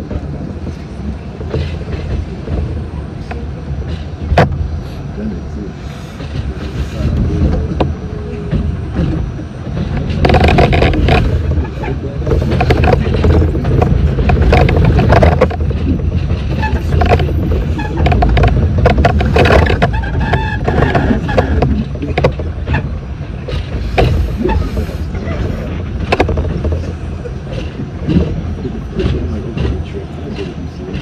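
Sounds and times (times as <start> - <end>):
subway train rumble: 0.0 - 31.0
wheel knocks and clatter: 6.2 - 31.0.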